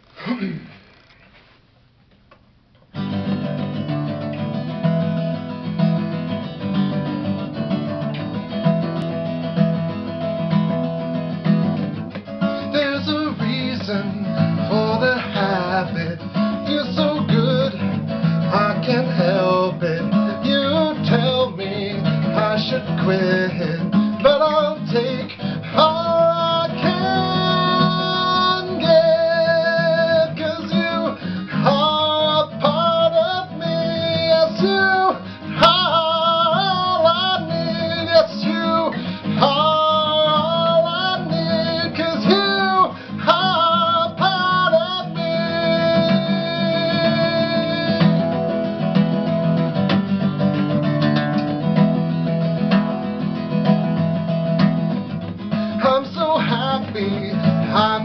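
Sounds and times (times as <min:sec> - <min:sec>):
acoustic guitar strumming: 0:02.9 - 0:58.0
man singing: 0:12.4 - 0:49.8, 0:55.1 - 0:58.0.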